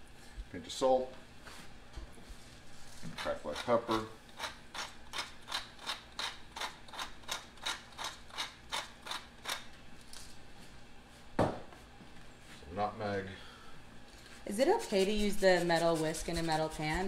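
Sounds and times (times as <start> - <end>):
pepper mill grinding: 3.1 - 9.7.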